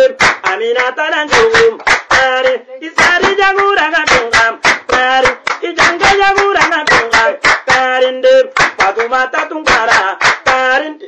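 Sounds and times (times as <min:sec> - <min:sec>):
sharp handclaps: 0:00.0 - 0:08.0, 0:08.6 - 0:10.7.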